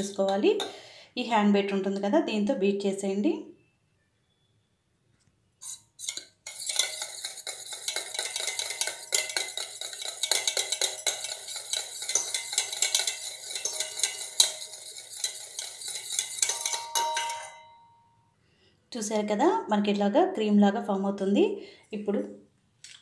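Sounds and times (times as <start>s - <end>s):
wire whisk beating in metal bowl: 6.0s - 17.7s.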